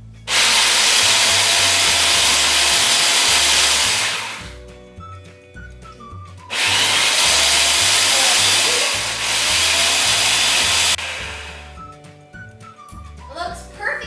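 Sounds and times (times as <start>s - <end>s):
food processor motor running: 0.3s - 4.6s, 6.5s - 11.8s.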